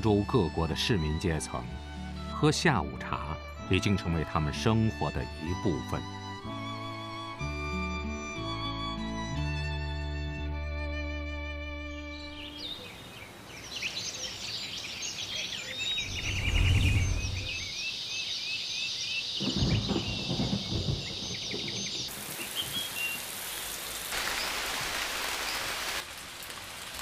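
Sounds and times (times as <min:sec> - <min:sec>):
birds chirping and trilling: 0:11.8 - 0:23.8
deep rumble: 0:15.9 - 0:17.7
rain falling on foliage: 0:19.4 - 0:27.0.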